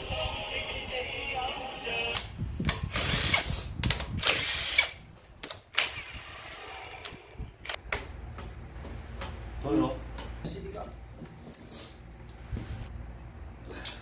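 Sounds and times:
impact wrench running: 2.7s - 3.5s.

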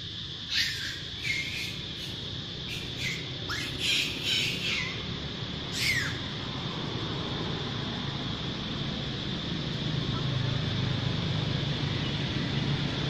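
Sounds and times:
infant monkey squealing: 0.4s - 6.3s.

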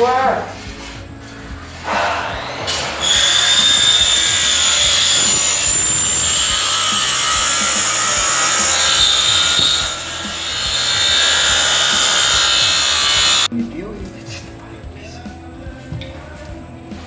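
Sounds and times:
hand scraper rasping on floor: 0.5s - 13.5s.

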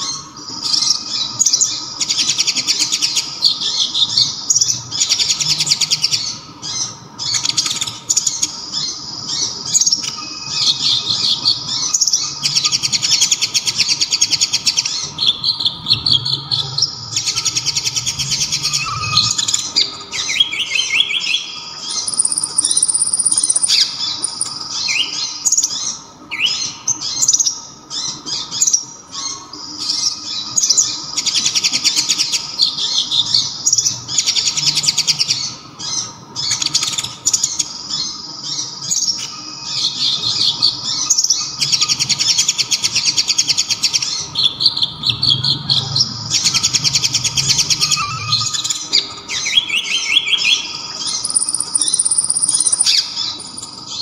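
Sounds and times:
bird singing fast high trills: 9.3s - 27.2s, 40.6s - 54.0s.

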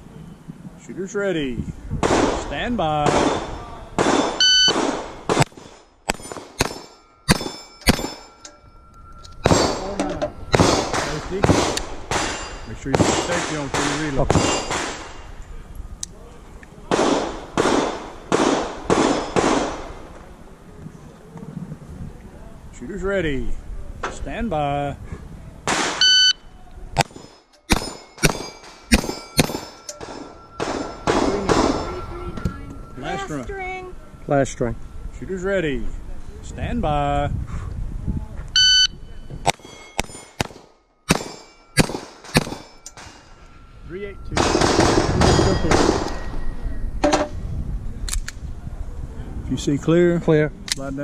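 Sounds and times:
pistol shots: 2.0s - 8.4s, 10.5s - 15.2s, 16.9s - 20.0s, 25.7s - 26.1s, 27.0s - 31.8s, 39.5s - 43.2s, 44.4s - 46.2s
shot timer beep: 4.4s - 4.8s, 26.0s - 26.4s, 38.6s - 39.0s
steel plates clanging: 5.4s - 15.4s, 27.0s - 33.3s, 39.5s - 47.3s.

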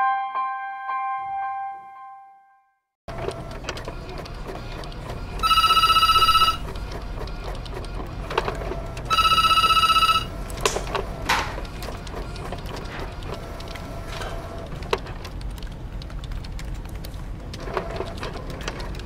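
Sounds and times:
office room noise: 3.1s - 19.0s
desk telephone ringing: 5.4s - 6.8s, 9.0s - 10.5s.

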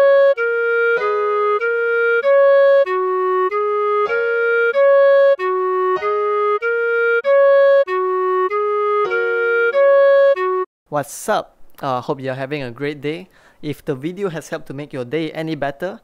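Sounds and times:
clarinet playing slow melody: 0.0s - 10.7s.

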